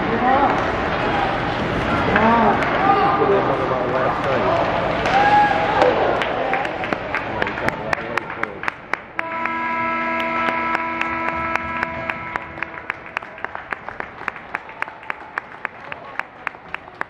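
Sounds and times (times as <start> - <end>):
hand clapping: 6.2 - 17.0
arena horn: 9.2 - 13.6.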